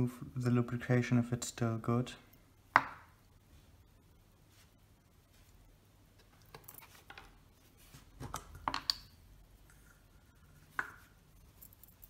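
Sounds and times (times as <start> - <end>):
small metal parts clinking: 11.4 - 12.0.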